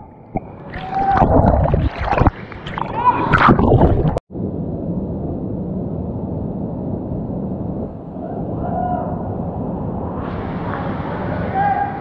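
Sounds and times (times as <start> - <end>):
muffled rush of water: 0.2 - 4.2, 10.0 - 12.0
water splashing: 0.3 - 4.2.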